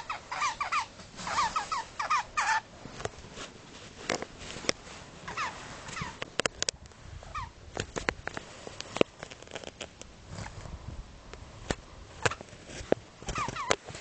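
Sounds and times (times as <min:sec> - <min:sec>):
sparrow chirping: 0:00.0 - 0:02.7.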